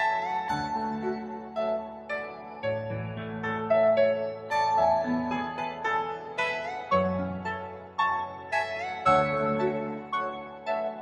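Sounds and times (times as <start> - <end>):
soft piano notes: 0.0 - 11.0.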